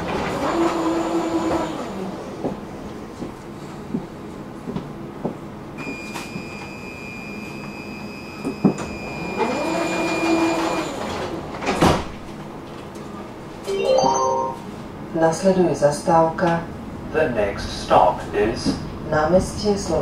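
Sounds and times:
sliding doors shutting with thump: 0:09.6 - 0:12.4.

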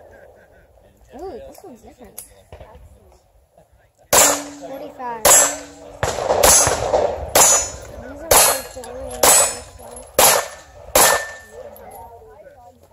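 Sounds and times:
pistol shots: 0:04.1 - 0:11.7
metallic ring of steel targets: 0:04.2 - 0:12.0.

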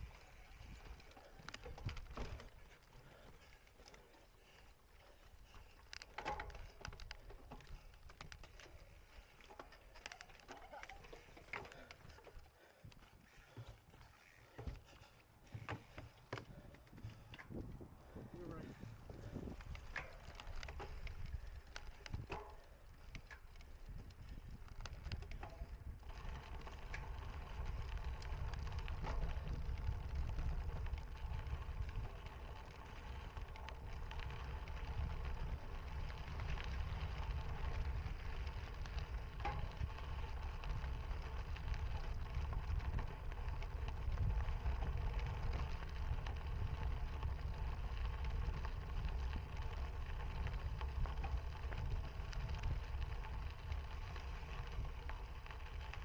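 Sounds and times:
bike clicks and rattles: 0:00.0 - 0:56.0
bike tyres rumbling on rough ground: 0:00.0 - 0:56.0
wind on microphone: 0:16.6 - 0:20.0.

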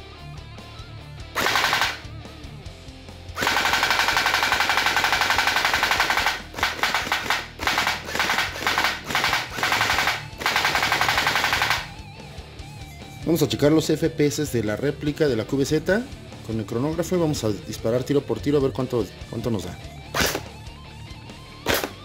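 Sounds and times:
gel blaster firing bursts: 0:01.4 - 0:02.1, 0:03.4 - 0:12.0, 0:20.2 - 0:20.6.

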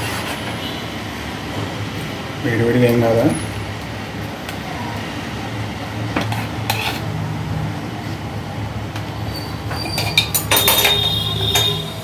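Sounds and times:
metal spoon scraping a pot: 0:06.2 - 0:07.1, 0:09.3 - 0:12.0.

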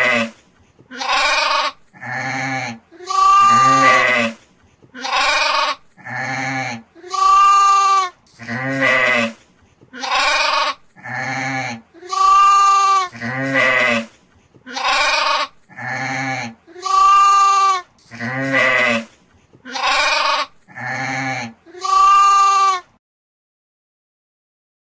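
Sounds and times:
sheep bleating: 0:00.9 - 0:04.4, 0:05.0 - 0:09.4, 0:10.0 - 0:14.1, 0:14.7 - 0:19.1, 0:19.7 - 0:22.8.

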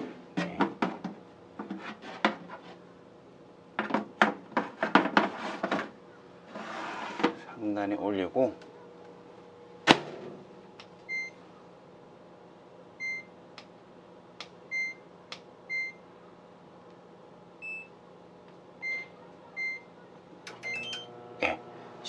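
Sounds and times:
steady low hum: 0:05.6 - 0:22.0
oven control panel beeps: 0:11.1 - 0:11.4, 0:13.0 - 0:13.3, 0:14.7 - 0:15.0, 0:15.7 - 0:16.0, 0:17.6 - 0:17.9, 0:18.8 - 0:19.9, 0:20.5 - 0:21.2.

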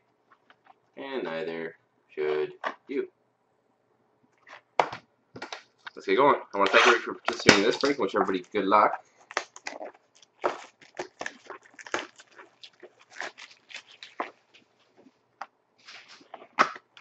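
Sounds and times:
shrink wrap crinkling: 0:06.6 - 0:15.2.

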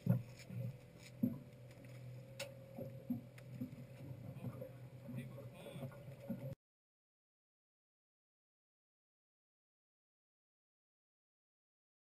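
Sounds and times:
soft irregular knocks: 0:00.0 - 0:04.8
steady low hum: 0:00.0 - 0:06.6.

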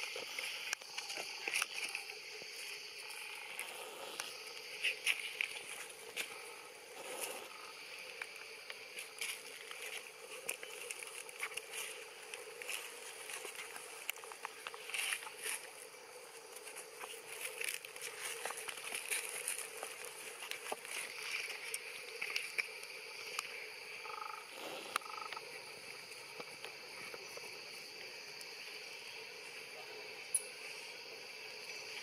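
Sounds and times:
faint clicks and rustles: 0:00.0 - 0:23.6
insects chirping: 0:00.0 - 0:32.0.

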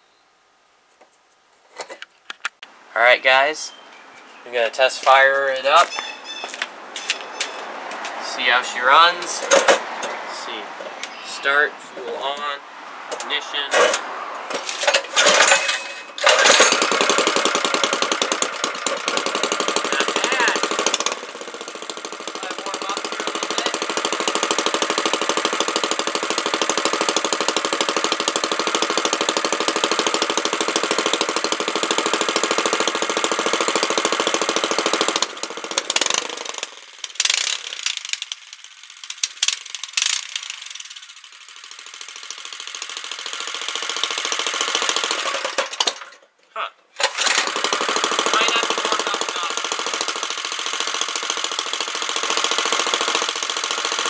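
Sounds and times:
engine sputtering: 0:07.1 - 0:46.2, 0:47.0 - 0:54.0
small engine running fast: 0:14.8 - 0:46.0, 0:47.0 - 0:54.0.

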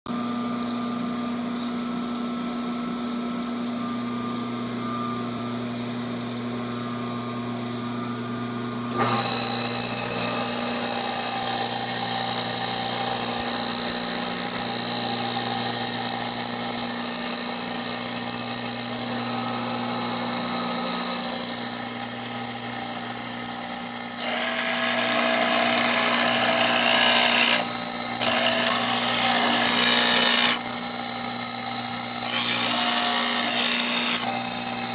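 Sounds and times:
drill press motor humming: 0:08.9 - 0:34.9
high-pitched drilling into wood: 0:08.9 - 0:34.9.

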